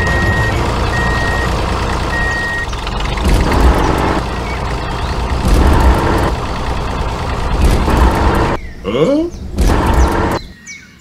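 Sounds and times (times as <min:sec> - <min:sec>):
reversing alarm beeping: 0:00.0 - 0:02.7
engine rumble: 0:00.0 - 0:10.6.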